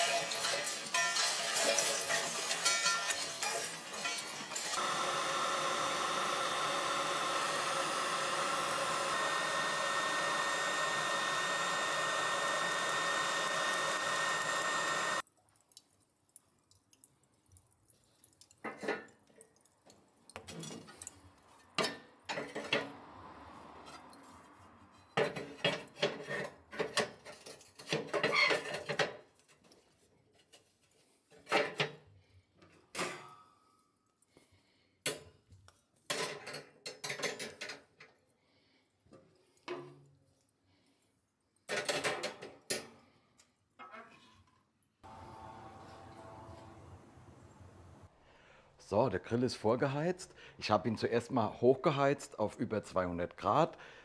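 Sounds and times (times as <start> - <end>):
hot-air lighter blowing: 4.7 - 15.2
motor whine: 4.8 - 15.2, 45.0 - 48.0.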